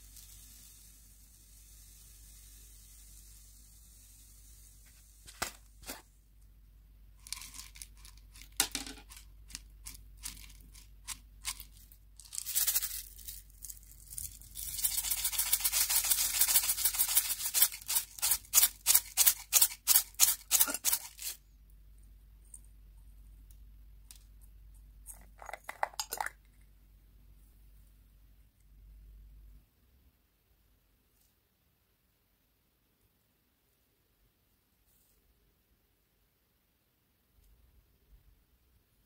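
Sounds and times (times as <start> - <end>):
hissing pour: 0.0 - 5.2
sprinkles rattling in shaker bottles: 7.2 - 21.4, 25.1 - 26.4.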